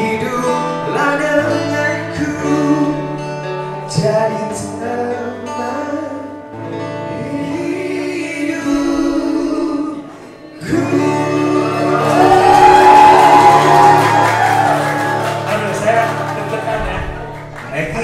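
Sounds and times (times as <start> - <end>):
man singing pop ballad: 0.0 - 3.2, 3.8 - 6.5
acoustic guitar: 0.0 - 18.0.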